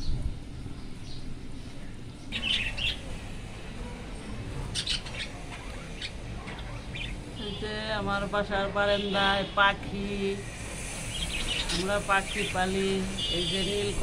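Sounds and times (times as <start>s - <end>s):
budgerigars chirping: 2.3s - 3.1s, 4.7s - 7.3s.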